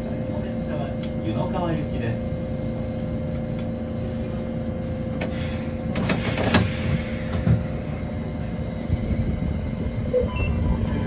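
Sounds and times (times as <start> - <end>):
tram running hum and rumble: 0.0 - 11.0
tram car knocks and rattles: 5.1 - 8.3.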